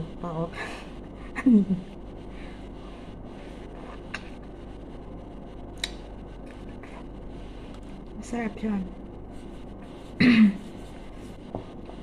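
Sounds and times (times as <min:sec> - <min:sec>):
steady low hum: 0:00.0 - 0:12.0
mouth and lip noises: 0:03.8 - 0:04.4.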